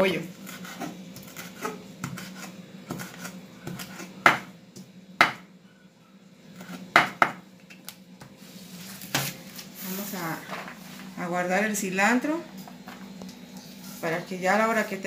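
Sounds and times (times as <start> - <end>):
knife chopping on wooden board: 0.4 - 4.5, 5.2 - 5.4, 6.6 - 7.4.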